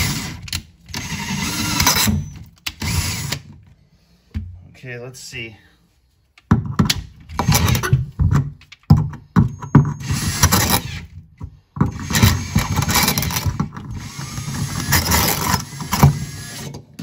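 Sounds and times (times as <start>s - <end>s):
drill grinding into brass: 1.0s - 3.4s, 11.9s - 16.8s.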